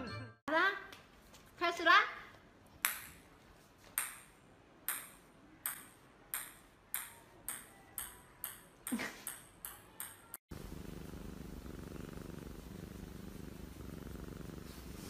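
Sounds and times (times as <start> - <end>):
ping-pong ball bouncing on tile: 2.8 - 3.2, 4.0 - 10.4.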